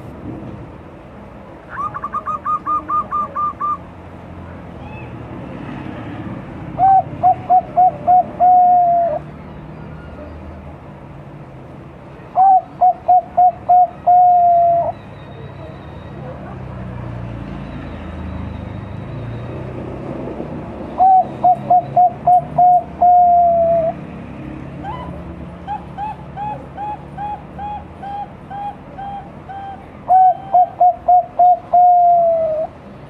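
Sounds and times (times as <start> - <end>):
dove cooing: 1.8 - 3.8, 6.8 - 9.2, 12.4 - 15.0, 21.0 - 24.0, 24.8 - 32.8.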